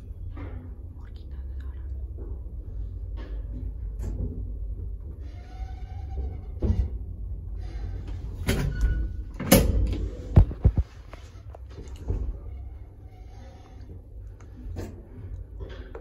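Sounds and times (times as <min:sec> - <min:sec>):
lift rumbling: 0:02.0 - 0:16.0.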